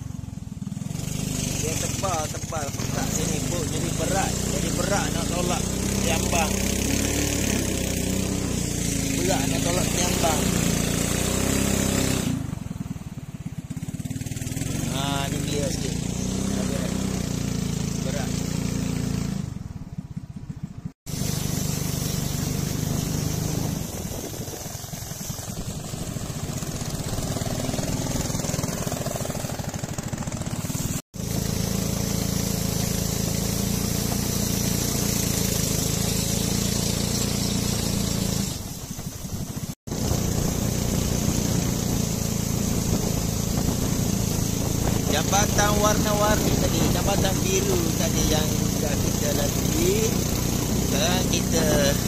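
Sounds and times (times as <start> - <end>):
boat engine running: 0.0 - 52.0
water rushing: 1.0 - 19.2, 21.1 - 52.0
wind rushing: 22.5 - 31.0.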